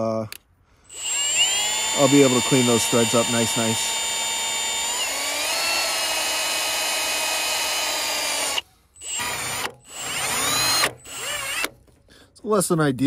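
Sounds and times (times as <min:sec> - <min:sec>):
drill wire brush scrubbing metal: 0:00.9 - 0:11.6.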